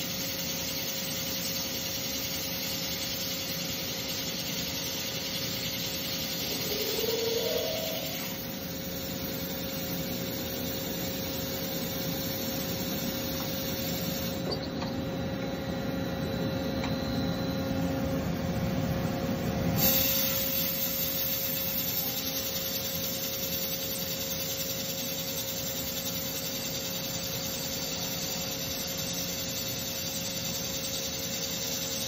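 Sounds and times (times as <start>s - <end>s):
machine hum: 2.4s - 19.1s.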